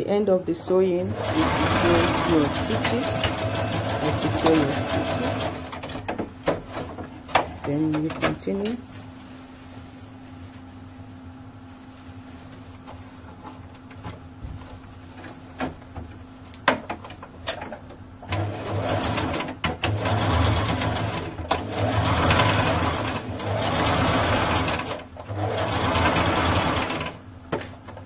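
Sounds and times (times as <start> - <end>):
sewing machine stitching: 1.1 - 6.0, 18.2 - 27.2.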